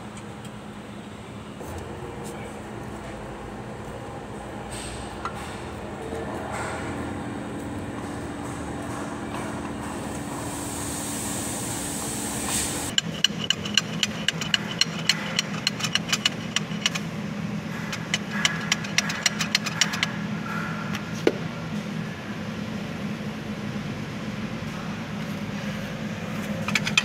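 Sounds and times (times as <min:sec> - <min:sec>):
low machine hum: 0:00.0 - 0:27.0
sharp metallic clicks: 0:12.9 - 0:17.0, 0:17.8 - 0:20.1.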